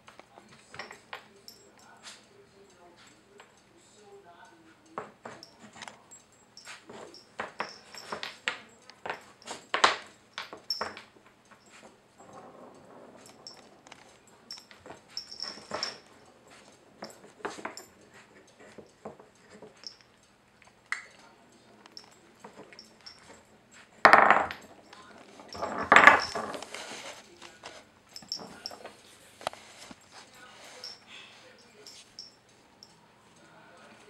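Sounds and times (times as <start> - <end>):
wooden puzzle pegs clacking: 6.9 - 20.2, 24.0 - 27.0.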